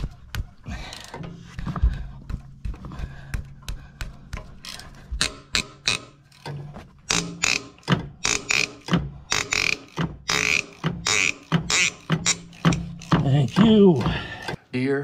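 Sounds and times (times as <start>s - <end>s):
socket ratchet clicking: 4.6s - 6.5s, 7.1s - 13.6s.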